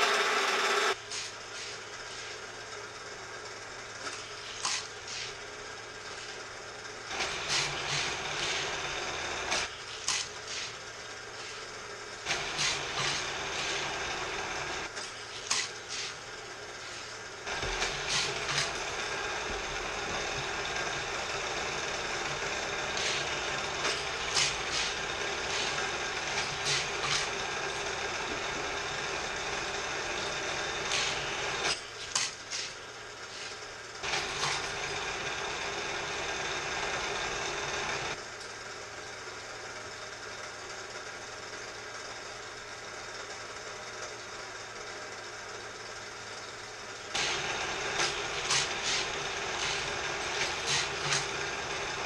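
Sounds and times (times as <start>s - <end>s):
toy motor whirring: 12.4s - 16.2s, 16.8s - 35.0s, 47.2s - 52.0s
toy car whacking through wheels: 15.4s - 16.2s, 30.9s - 32.8s, 48.0s - 51.4s.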